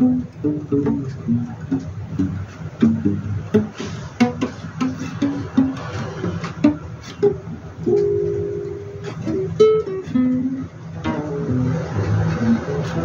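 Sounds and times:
plucked string instrument: 0.0 - 13.0.

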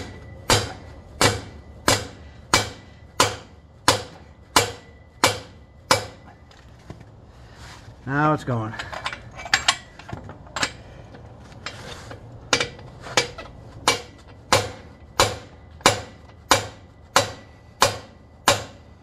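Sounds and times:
hammer striking metal: 0.0 - 6.4, 12.5 - 19.0.

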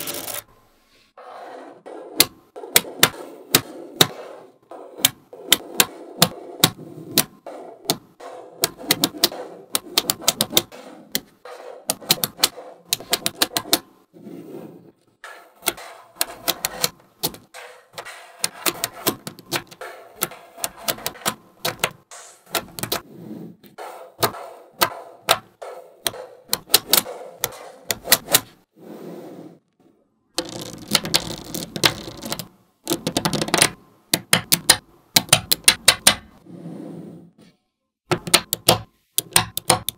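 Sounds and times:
magnetic balls clicking together: 5.0 - 11.3, 11.9 - 13.8, 24.2 - 28.5, 30.4 - 36.4, 38.1 - 39.9.

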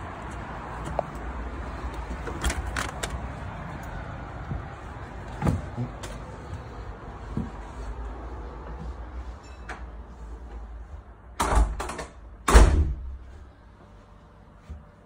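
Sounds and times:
steady low rumble: 0.0 - 9.4
door thump: 11.4 - 13.2.

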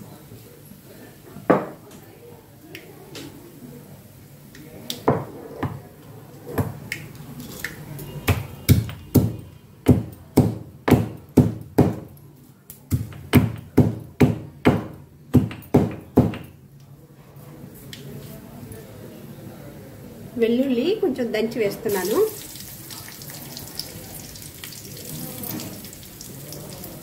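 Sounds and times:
pestle pounding in mortar: 8.3 - 12.1, 12.9 - 16.5.

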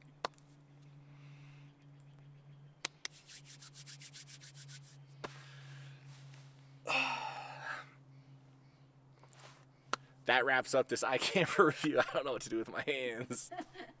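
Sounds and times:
hands rubbing together: 2.9 - 5.4.

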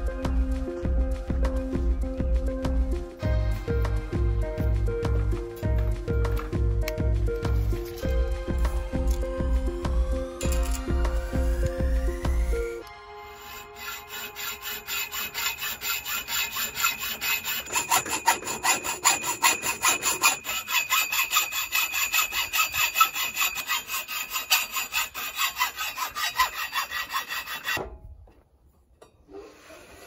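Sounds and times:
hacksaw cutting metal pipe: 10.4 - 27.9.

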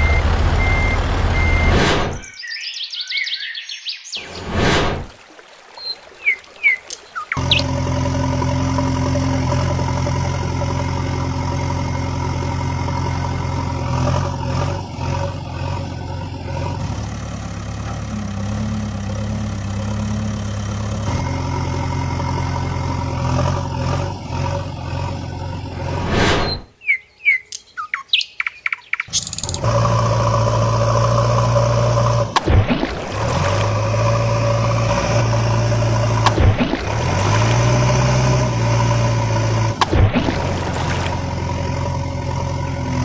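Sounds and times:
diesel engine running: 0.0 - 2.2, 7.4 - 26.6, 29.1 - 43.0
birds chirping: 2.1 - 4.6, 5.6 - 7.8, 26.4 - 29.7.

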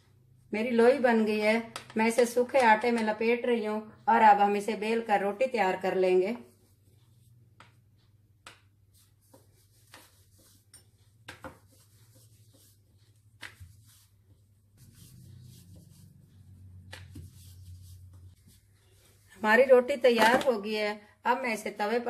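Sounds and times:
rolling pin rubbing dough: 6.4 - 19.9.

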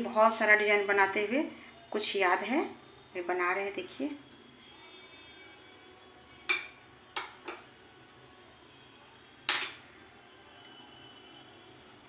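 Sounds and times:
metal spoon clinking glass bowl: 6.5 - 7.7, 9.5 - 9.9.

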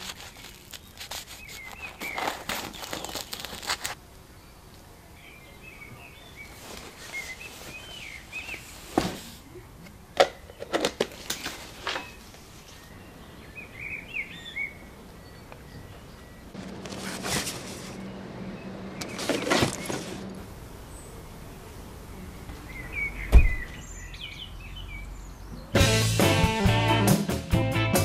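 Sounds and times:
crackling handling noise: 0.0 - 4.0, 6.6 - 12.9, 16.5 - 18.2, 19.0 - 20.6
small birds chirping: 0.0 - 16.6, 17.2 - 25.8.

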